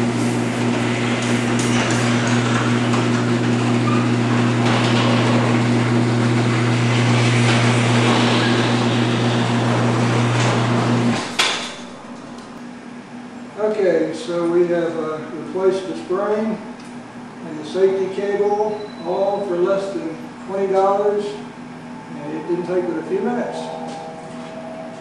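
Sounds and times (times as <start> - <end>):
garage door rattling on tracks: 0.0 - 12.5
garage door motor humming: 0.0 - 13.6, 14.2 - 25.0
door stopping clunk: 0.4 - 12.6.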